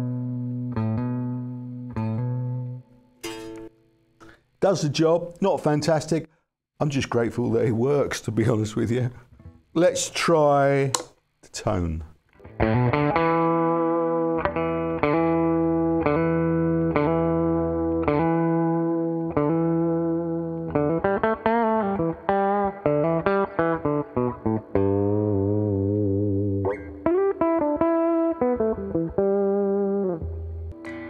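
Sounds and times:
electric guitar through amplifier: 12.4s - 31.0s.

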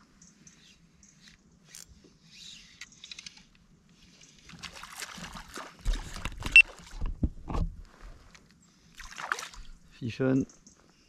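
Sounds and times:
small water splashes: 4.4s - 7.1s, 9.0s - 9.8s
knocks and rattles on kayak: 5.8s - 7.8s.

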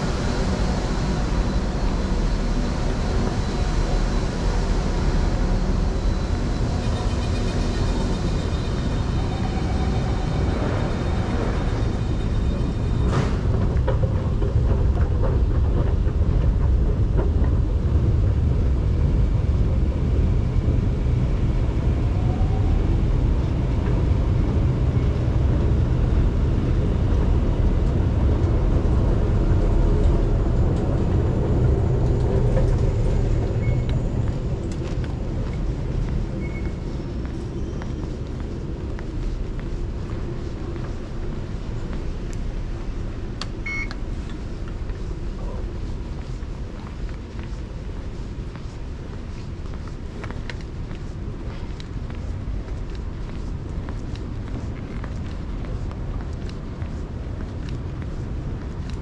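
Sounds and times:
high steady train tones: 0.0s - 59.0s
low rumble of station and escalator: 0.0s - 59.0s.

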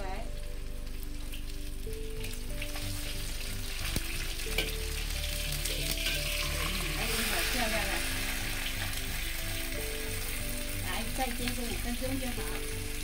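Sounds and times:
fish sizzling in oil: 0.0s - 13.0s
metal spatula scraping wok: 3.6s - 10.4s.

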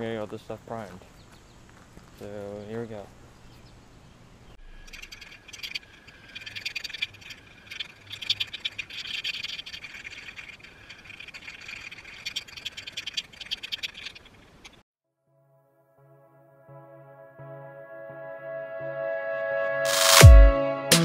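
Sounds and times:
aerosol can rattling when shaken: 4.9s - 14.4s.

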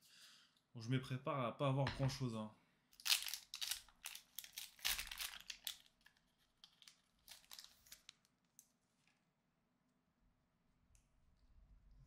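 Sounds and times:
foil wrapper tearing and crinkling: 3.0s - 8.3s.

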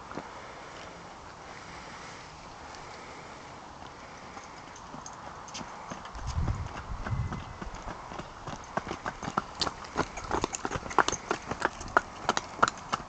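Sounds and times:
hooves clip-clopping on wet tarmac: 3.6s - 13.0s.

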